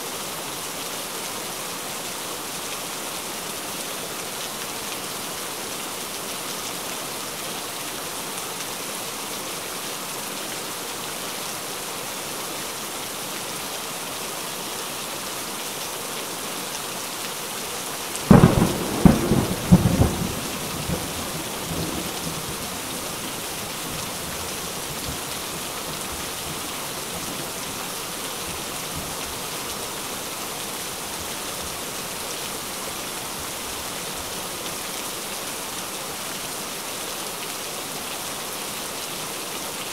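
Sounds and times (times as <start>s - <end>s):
steady rain: 0.0s - 39.9s
thunder cracking and rumbling: 18.3s - 22.6s.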